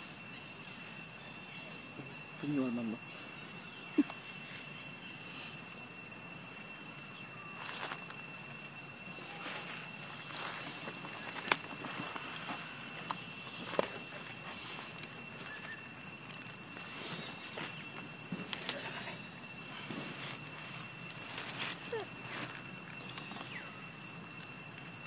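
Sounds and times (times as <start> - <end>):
insects chirring: 0.0 - 25.0
dry leaves rustling: 9.2 - 23.2.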